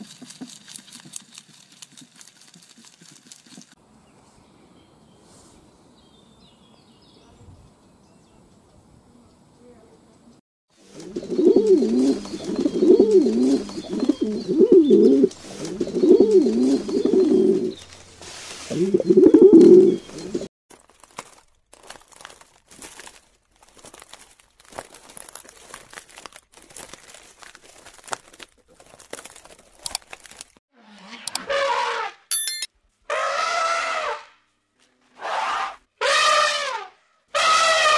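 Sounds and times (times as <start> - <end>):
pigeon cooing: 10.9 - 17.8, 18.7 - 20.5.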